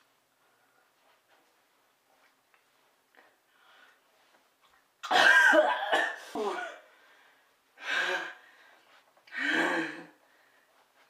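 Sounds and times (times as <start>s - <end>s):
person gasping: 6.4s - 10.7s.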